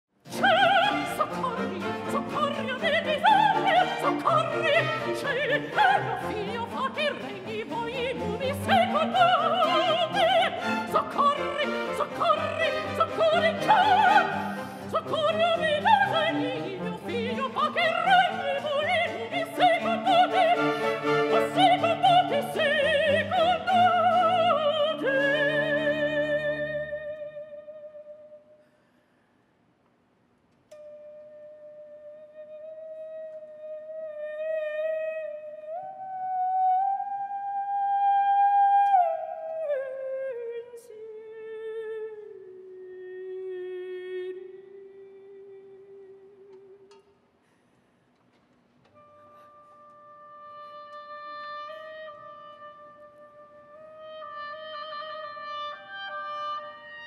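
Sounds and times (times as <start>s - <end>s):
orchestral accompaniment: 0.3s - 27.2s
woman singing opera with vibrato: 0.3s - 28.5s, 30.9s - 46.9s, 49.0s - 57.0s.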